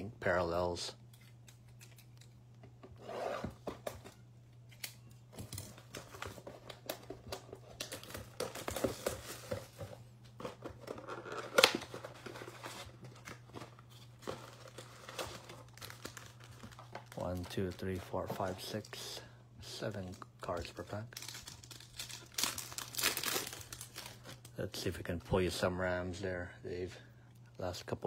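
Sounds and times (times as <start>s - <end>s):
plastic wrap crinkling: 10.8s - 18.9s, 20.0s - 24.6s.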